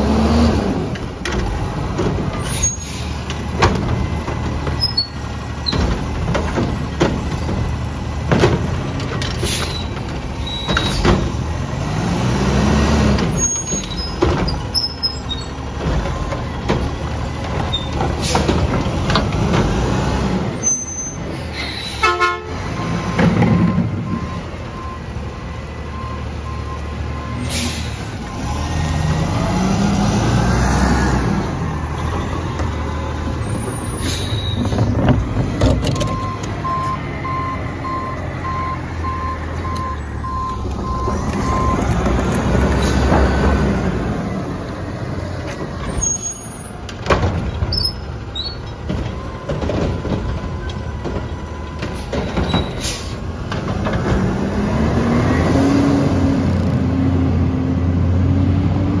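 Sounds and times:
diesel engine revving: 0.0s - 59.0s
air brakes hissing: 2.4s - 3.3s, 9.4s - 10.0s, 21.0s - 22.1s, 27.4s - 28.2s, 33.8s - 34.7s, 52.0s - 53.3s
back-up alarm beeping: 36.0s - 41.8s.

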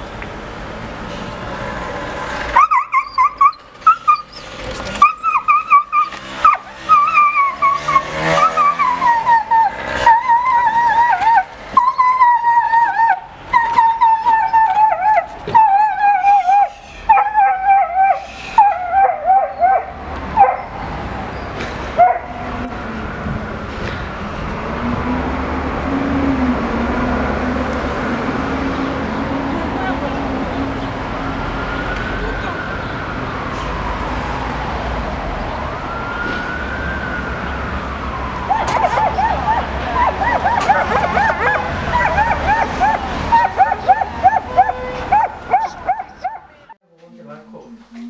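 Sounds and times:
street traffic: 0.0s - 48.0s
dog yelping and screaming: 2.6s - 20.7s, 38.5s - 46.7s.

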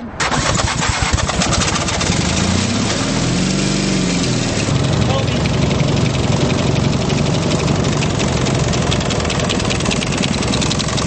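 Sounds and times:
motorcycle engine running steadily: 4.4s - 11.0s
fast even ticking: 4.7s - 11.0s.

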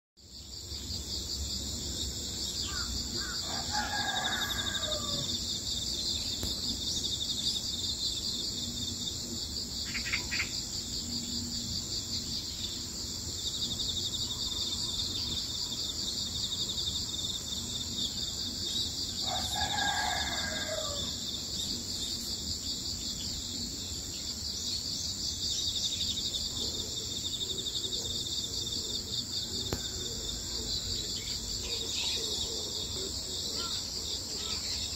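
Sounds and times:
crickets chirping: 0.2s - 34.9s
rooster crowing: 2.7s - 5.4s, 19.2s - 21.4s, 29.3s - 30.6s.

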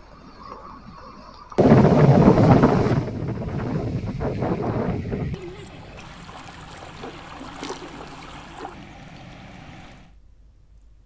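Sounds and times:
floodwater rushing: 1.6s - 10.1s.

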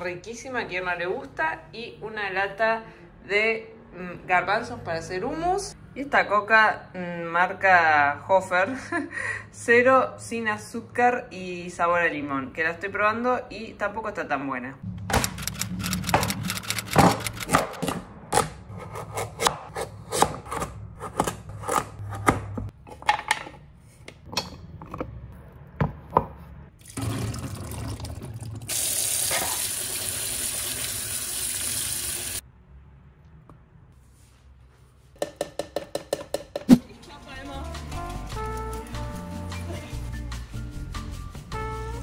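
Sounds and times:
tap water running: 26.8s - 32.4s.

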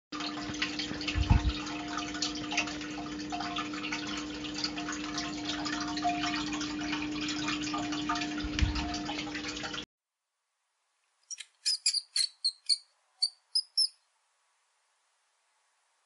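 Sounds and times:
water dripping and trickling: 0.2s - 9.9s.

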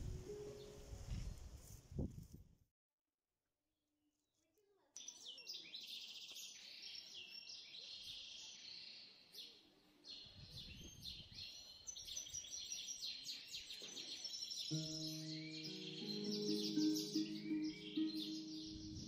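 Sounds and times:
small birds chirping: 5.0s - 19.0s.

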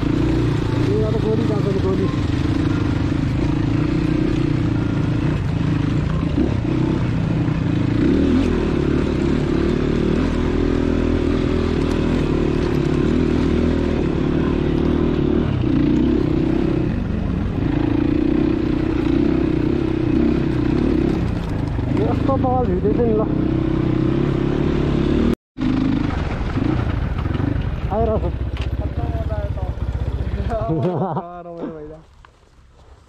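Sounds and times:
dirt bike engine revving: 0.0s - 31.2s.

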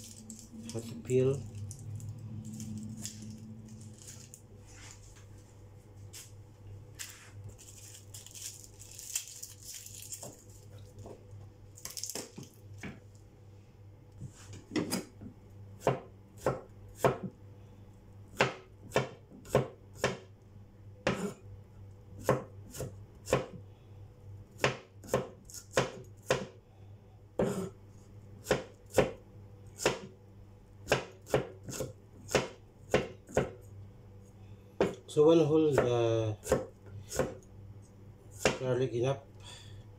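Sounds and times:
knife chopping on wooden board: 15.8s - 17.3s, 18.4s - 20.3s, 21.0s - 21.4s, 22.2s - 23.6s, 24.6s - 26.6s, 27.4s - 27.7s, 28.4s - 29.2s, 29.8s - 30.1s, 30.9s - 33.6s, 34.8s - 35.0s, 35.7s - 37.4s, 38.4s - 38.6s.

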